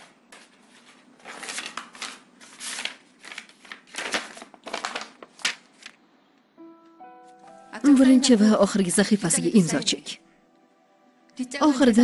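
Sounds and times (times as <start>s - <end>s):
paper rustling: 0.0s - 6.0s.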